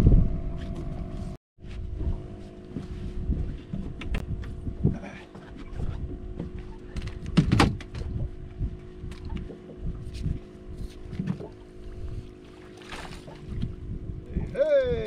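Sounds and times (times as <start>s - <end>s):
low steady hum: 0.0s - 15.0s
water slapping boat hull: 1.9s - 15.0s.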